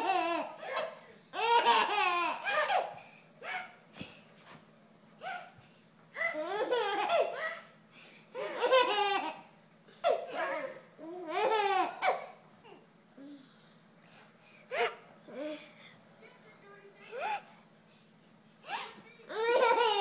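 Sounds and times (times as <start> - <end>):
baby laughing: 0.0 - 3.8, 6.2 - 7.7, 8.4 - 12.3, 18.7 - 20.0.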